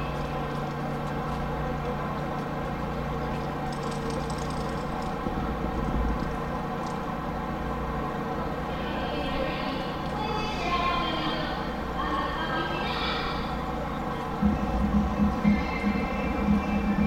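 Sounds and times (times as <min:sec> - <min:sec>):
ship engines idling: 0:00.0 - 0:17.0.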